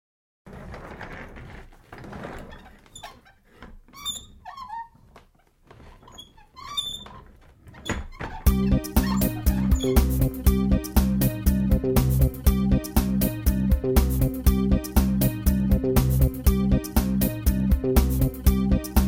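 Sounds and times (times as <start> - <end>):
short squeaks and whining glides: 1.1 - 10.2
music with a strong beat: 8.5 - 19.0.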